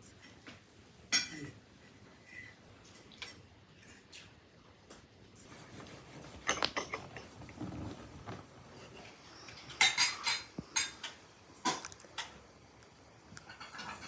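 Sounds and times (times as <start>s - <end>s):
dishes and cutlery clinking: 1.1s - 1.5s, 6.3s - 8.0s, 9.0s - 12.4s, 13.4s - 14.0s.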